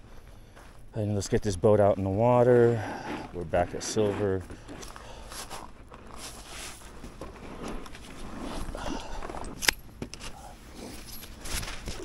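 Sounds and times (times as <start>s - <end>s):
footsteps: 0.0s - 12.0s
rustling of gear: 3.0s - 12.0s.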